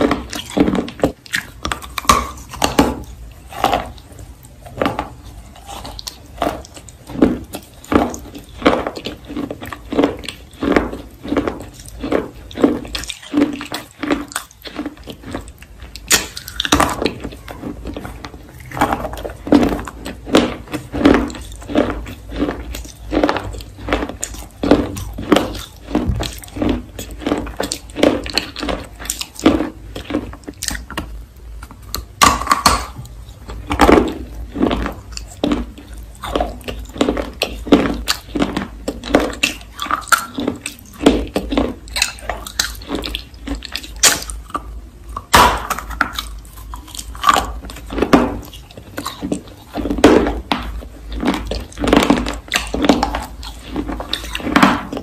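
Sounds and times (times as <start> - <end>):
crunchy food being chewed: 0.0 - 55.0.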